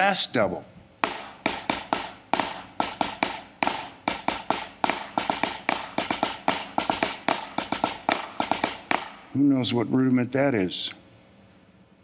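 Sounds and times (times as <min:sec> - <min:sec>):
snare drum rudiment: 0:01.0 - 0:09.3.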